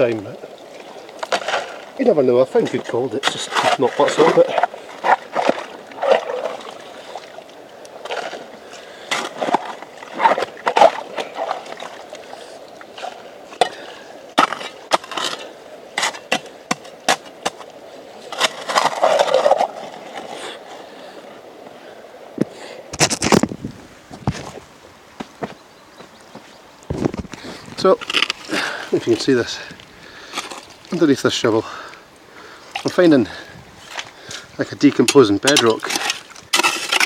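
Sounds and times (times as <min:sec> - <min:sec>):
shovel scraping gravel: 0:14.4 - 0:17.6, 0:18.3 - 0:19.8, 0:35.5 - 0:37.0.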